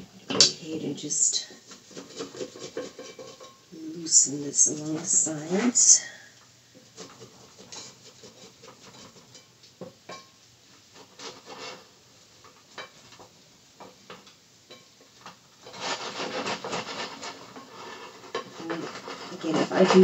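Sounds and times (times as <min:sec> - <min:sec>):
wooden spatula scraping a skillet: 0:00.0 - 0:20.0.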